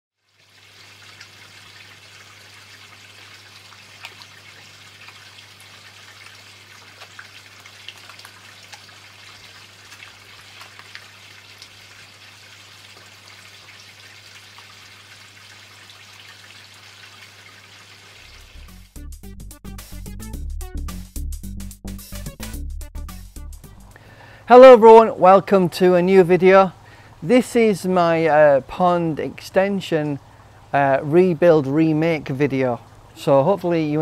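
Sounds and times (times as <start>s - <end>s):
fish splashing and slurping: 0.2s - 18.8s, 30.1s - 30.8s
water trickling: 0.2s - 18.9s, 23.6s - 34.0s.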